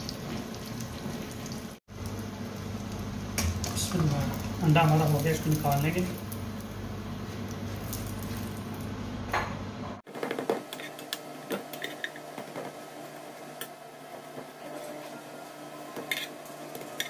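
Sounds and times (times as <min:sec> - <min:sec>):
steady low hum: 0:01.9 - 0:10.0.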